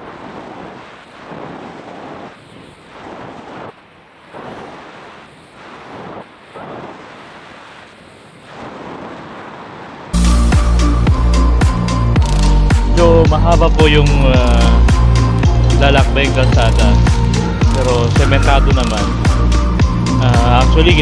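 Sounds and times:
wind on microphone: 0.0 - 21.0
loud music with a beat: 10.2 - 21.0.

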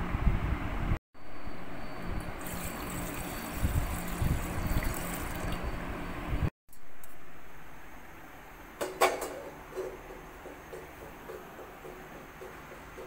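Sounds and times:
water pouring into metal pot: 2.3 - 5.8.

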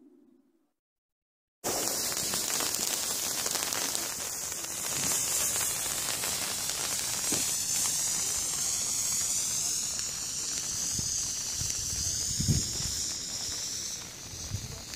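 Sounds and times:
firework fountain hissing and crackling: 1.6 - 14.9.

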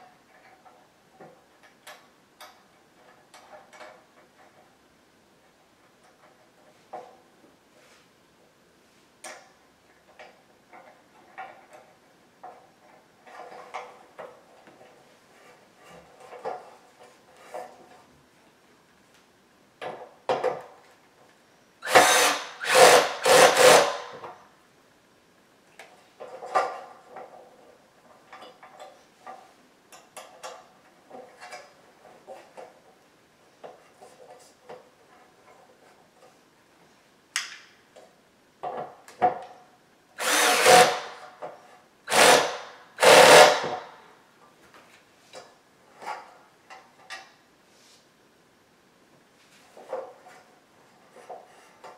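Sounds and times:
cordless drill driving bolts: 21.8 - 24.3, 40.2 - 41.3, 42.1 - 43.9.

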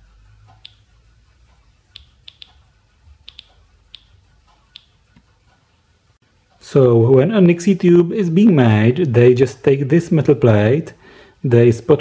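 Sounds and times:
geiger counter clicking: 0.4 - 5.3.

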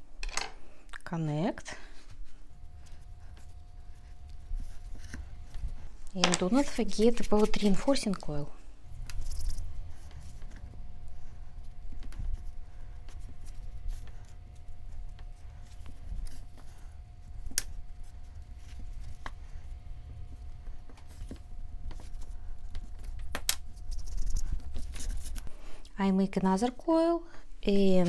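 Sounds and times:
hands smoothing clay: 1.9 - 8.3, 9.0 - 23.1.

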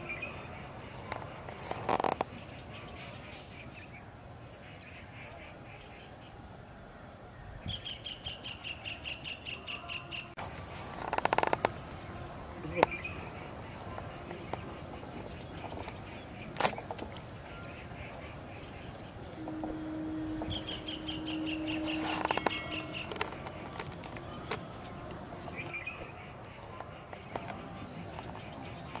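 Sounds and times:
insects droning: 0.0 - 29.0
bird chirping: 7.2 - 29.0
low steady hum: 11.7 - 28.9.

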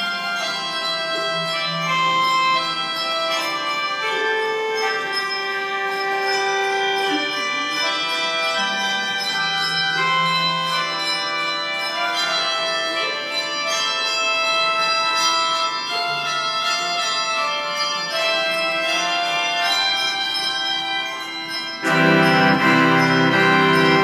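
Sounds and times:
handbells ringing: 0.0 - 24.0
sustained organ chords: 21.3 - 24.0.

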